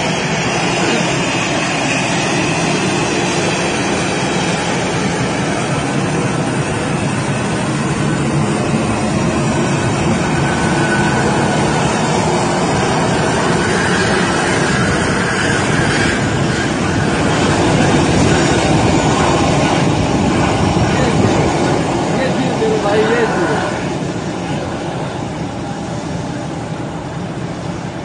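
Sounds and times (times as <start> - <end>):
aircraft engine drone: 0.0 - 28.0.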